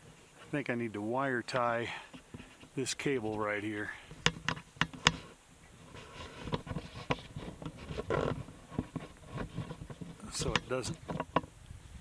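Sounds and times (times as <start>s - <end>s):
cable tie rasp: 4.2s - 11.4s.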